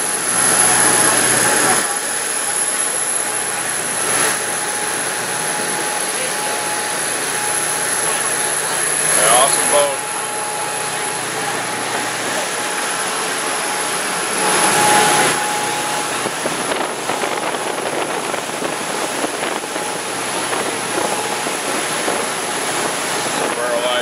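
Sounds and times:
boat engines droning: 0:00.0 - 0:24.0
churning wake water: 0:00.0 - 0:24.0
wind rushing: 0:14.0 - 0:23.6.

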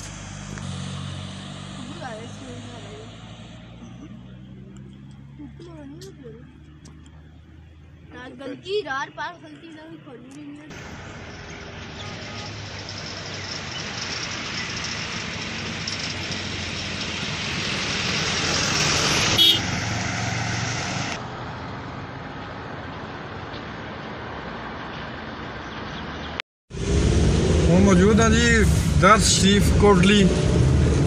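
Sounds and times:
road vehicle passing: 0:00.0 - 0:31.0
vehicle horn toot: 0:11.9 - 0:12.6, 0:19.4 - 0:19.7.

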